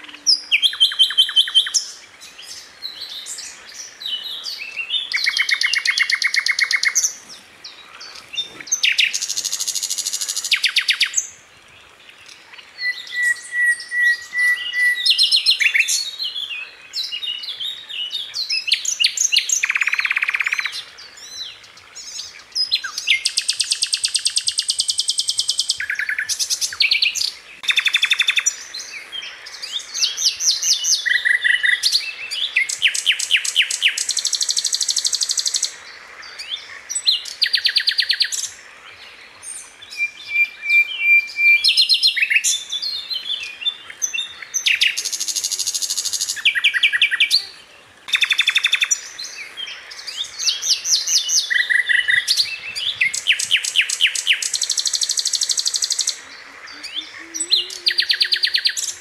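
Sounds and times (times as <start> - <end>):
flycatcher singing trilled phrases: 50.4 - 59.0.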